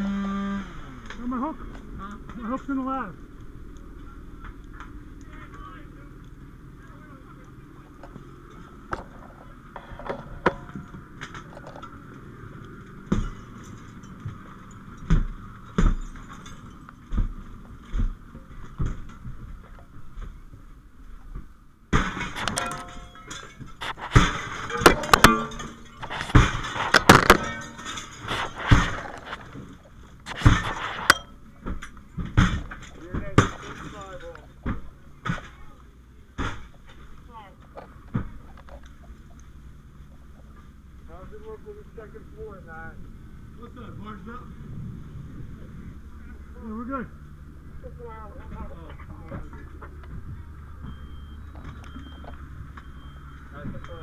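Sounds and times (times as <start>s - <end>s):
glass breaking crashes: 13.1s - 16.9s, 21.9s - 29.5s
heavy thumps: 21.3s - 35.6s
metal pole striking: 22.0s - 29.0s, 30.4s - 31.4s
metal gear clinking and rattling: 22.2s - 32.0s.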